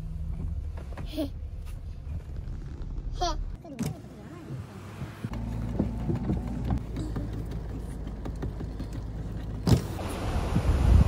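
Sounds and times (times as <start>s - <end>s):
road and engine rumble: 0.0s - 11.0s
tyres hissing on wet road: 10.0s - 11.0s.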